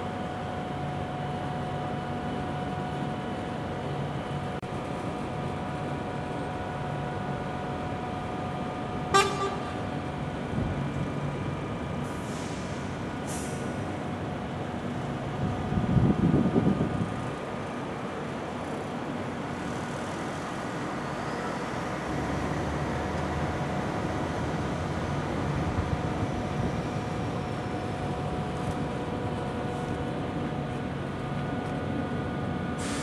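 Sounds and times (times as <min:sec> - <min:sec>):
short hisses: 0:12.2 - 0:13.7.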